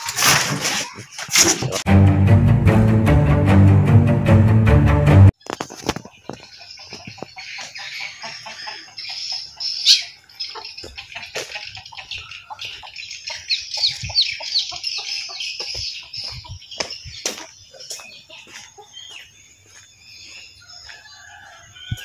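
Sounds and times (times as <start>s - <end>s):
birds chirping and calling: 5.4s - 22.0s.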